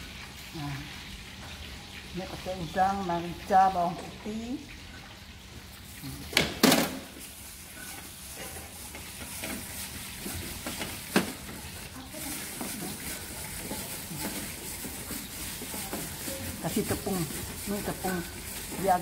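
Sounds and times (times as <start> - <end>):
scraping and stirring in plastic bowl: 7.6 - 19.0.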